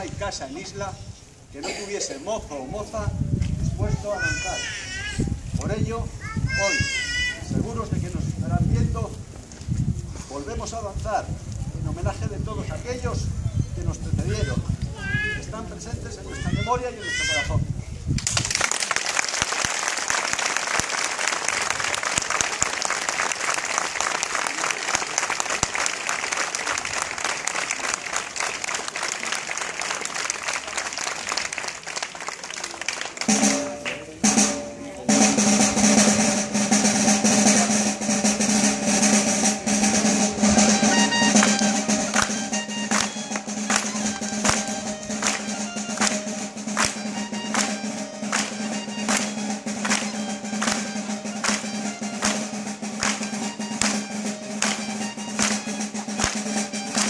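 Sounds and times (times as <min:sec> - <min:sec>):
crowd applause: 0:18.2 - 0:34.0, 0:40.7 - 0:54.0
pipe playing a dance tune: 0:33.1 - 0:57.0
snare drum roll: 0:33.2 - 0:57.0.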